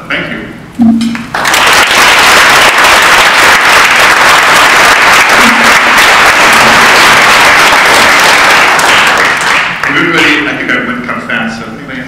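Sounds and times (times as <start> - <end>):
audience applauding: 1.2 - 10.5.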